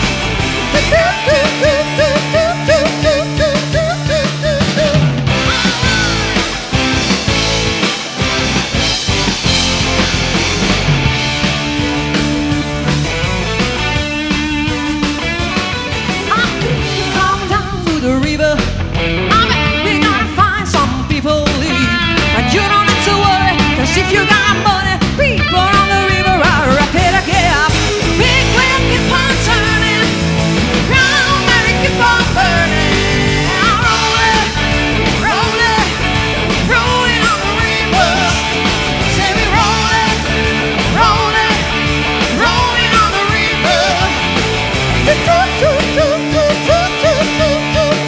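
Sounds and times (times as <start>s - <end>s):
live rock band playing: 0.0s - 48.0s
lead vocals singing: 0.6s - 7.0s, 16.2s - 18.6s, 19.4s - 48.0s.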